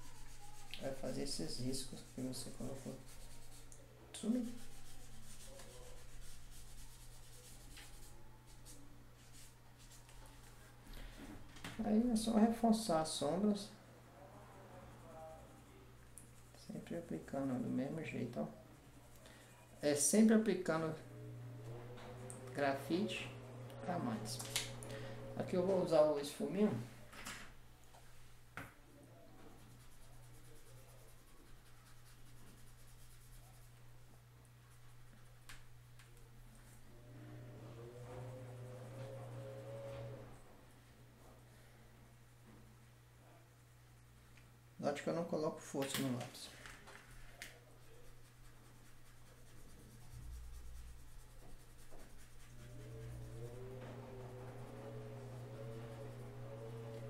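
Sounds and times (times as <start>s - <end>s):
blending stump rubbing paper: 0.0s - 10.5s, 37.0s - 40.3s, 47.1s - 57.0s
low electrical hum: 0.0s - 57.0s.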